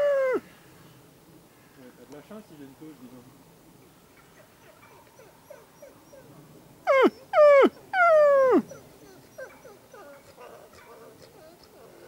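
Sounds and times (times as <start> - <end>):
wolves whining: 0.0 - 0.5, 4.2 - 12.0
faint whimpers: 8.4 - 12.0.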